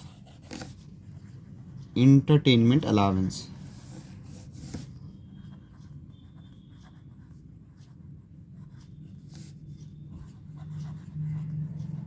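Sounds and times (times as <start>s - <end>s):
pen scratching on paper: 0.0s - 0.8s, 3.8s - 12.0s.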